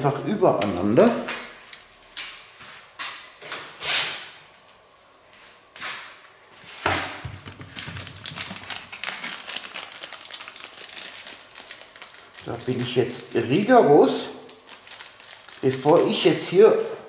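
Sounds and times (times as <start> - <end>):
packaging crinkling: 7.4 - 16.6.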